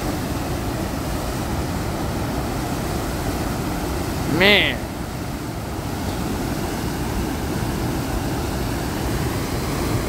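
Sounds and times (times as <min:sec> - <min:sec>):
water rushing into concrete channel: 0:00.0 - 0:10.0.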